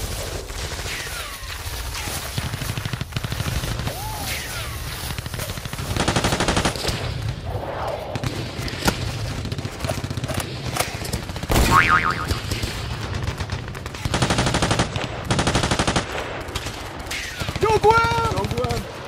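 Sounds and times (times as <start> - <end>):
gunshots: 0.0 - 19.0
machine-gun bursts: 5.0 - 6.9, 9.2 - 18.8.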